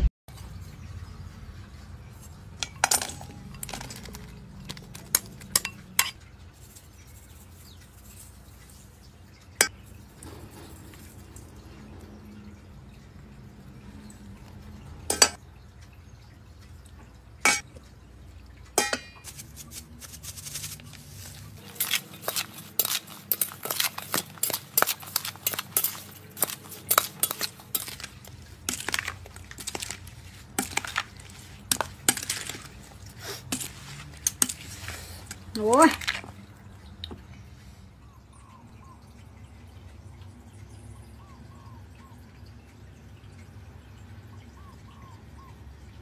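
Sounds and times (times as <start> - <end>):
utensils clinking against dishes: 2.5 - 6.9, 18.8 - 19.4, 21.6 - 36.3.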